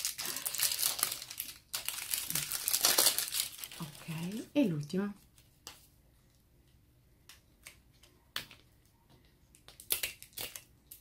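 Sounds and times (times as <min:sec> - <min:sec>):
plastic clicks and crinkles: 0:00.0 - 0:04.4, 0:07.2 - 0:11.0.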